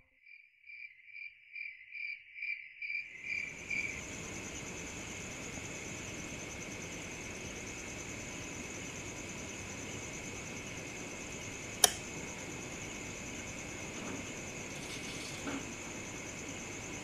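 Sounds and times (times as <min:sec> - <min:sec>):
crickets chirping: 0:00.3 - 0:17.0
sharp click: 0:11.8 - 0:12.0.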